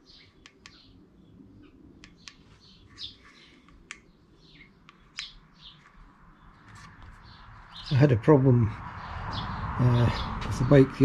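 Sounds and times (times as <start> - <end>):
small birds chirping: 0.0 - 11.0
sharp ticks: 0.4 - 0.9.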